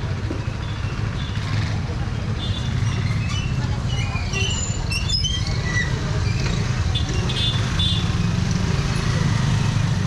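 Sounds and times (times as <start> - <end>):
low street rumble: 0.0 - 10.0
high chirps and squeaks: 2.8 - 6.6.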